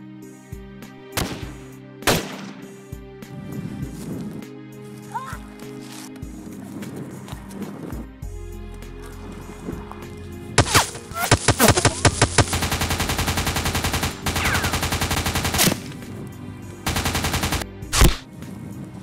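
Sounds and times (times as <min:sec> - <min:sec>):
background music: 0:00.0 - 0:19.0
rifle shots: 0:01.2 - 0:02.8, 0:10.6 - 0:16.0, 0:16.9 - 0:18.2
automatic gunfire bursts: 0:10.6 - 0:15.9, 0:16.9 - 0:18.2.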